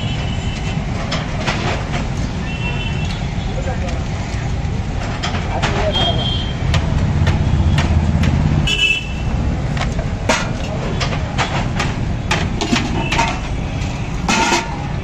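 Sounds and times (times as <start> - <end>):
road traffic rumble: 0.0 - 15.0
vehicle horn toot: 8.7 - 9.3
metal plates clinking: 10.0 - 15.0.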